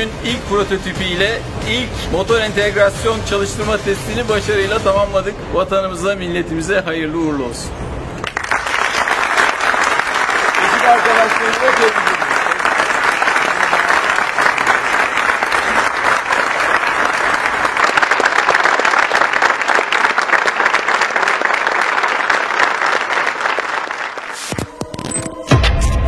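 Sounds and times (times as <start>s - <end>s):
crowd applause: 8.2s - 24.5s.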